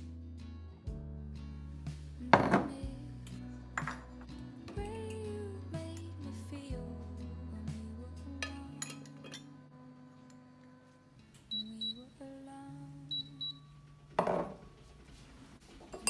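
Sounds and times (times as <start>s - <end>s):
quiet background music: 0.0s - 16.0s
bowl knocking on counter: 2.3s - 2.7s, 14.2s - 14.6s.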